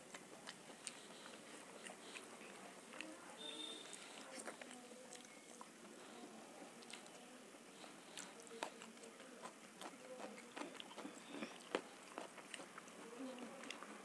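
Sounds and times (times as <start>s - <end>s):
mouth chewing food: 0.0s - 14.0s.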